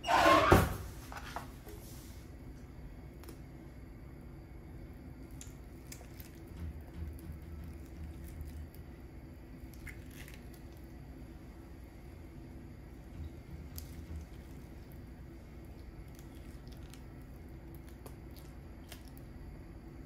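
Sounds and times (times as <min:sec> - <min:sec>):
wet squishing of mango: 0:09.6 - 0:10.9, 0:13.6 - 0:19.4.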